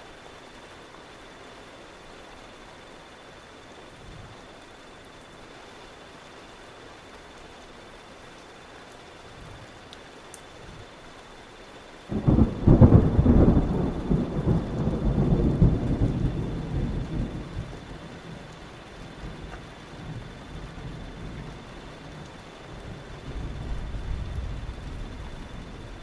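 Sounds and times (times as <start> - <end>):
rain hissing: 0.0 - 26.0
thunder clap rumbling: 12.1 - 18.2, 22.8 - 26.0.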